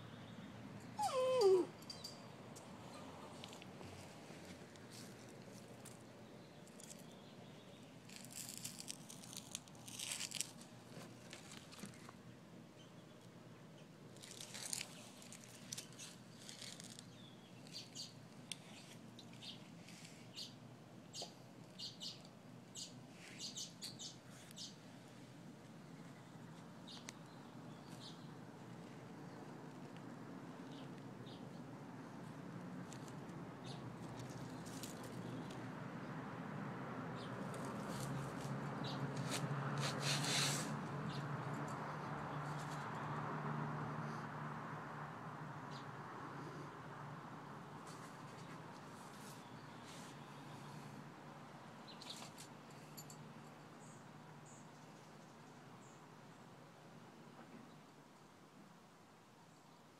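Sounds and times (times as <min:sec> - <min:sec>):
dry leaves rustling and crackling: 0:08.0 - 0:12.1, 0:14.2 - 0:17.1.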